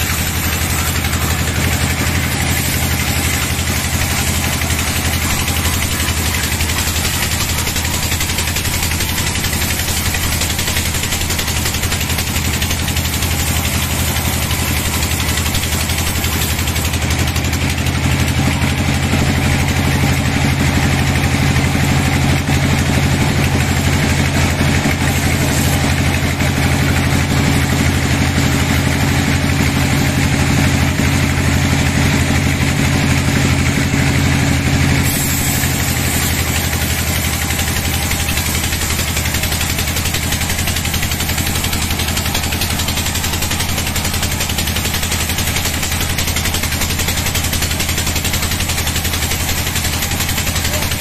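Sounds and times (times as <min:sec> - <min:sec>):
band saw cutting log: 0:00.0 - 0:51.0.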